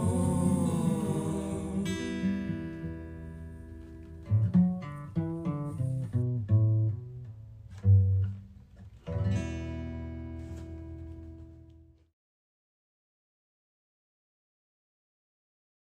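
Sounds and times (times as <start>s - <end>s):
acoustic guitar playing: 0.0s - 12.0s.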